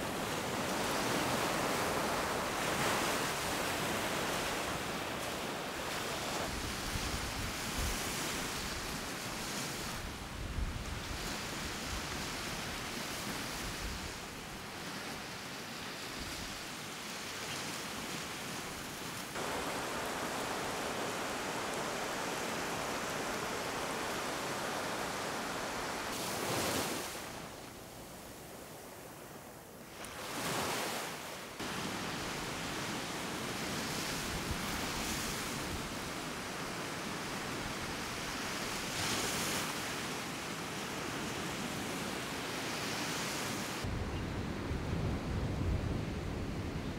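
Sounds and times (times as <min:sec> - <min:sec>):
waves washing up beach: 0:00.0 - 0:10.3, 0:10.9 - 0:29.1, 0:29.8 - 0:43.9
wind on microphone: 0:06.2 - 0:14.3, 0:43.6 - 0:46.9.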